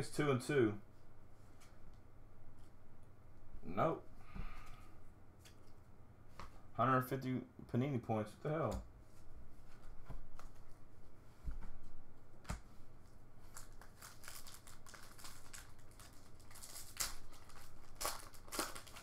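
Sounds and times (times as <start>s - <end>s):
foil wrapper crinkling and tearing: 13.4s - 19.0s.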